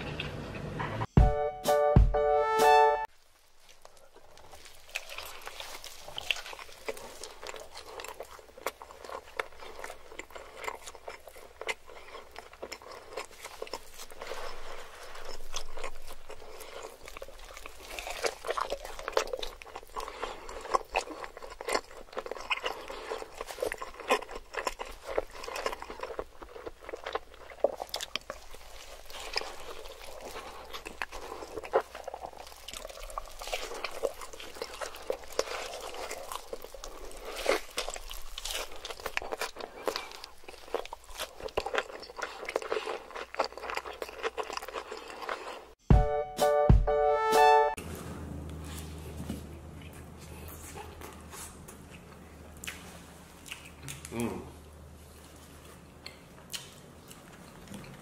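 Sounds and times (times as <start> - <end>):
biting and chewing burger: 3.1 - 45.8.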